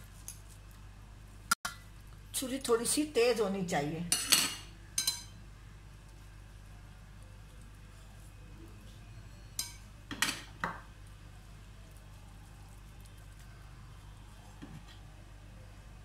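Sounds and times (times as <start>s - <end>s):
sharp clinks against metal bowl: 4.1s - 5.4s, 9.6s - 9.8s.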